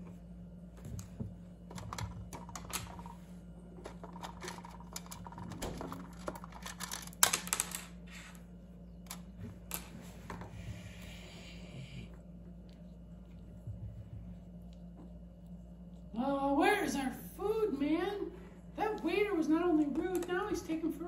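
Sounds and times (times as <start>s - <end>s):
low hum: 0.0s - 21.0s
plastic toys clicking on table: 20.0s - 20.4s.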